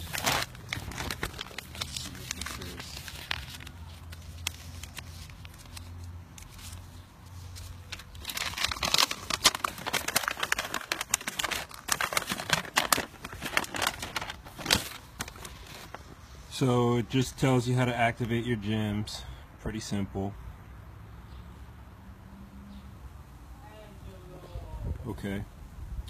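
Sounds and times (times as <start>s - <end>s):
packaging crinkling: 0.0s - 16.1s.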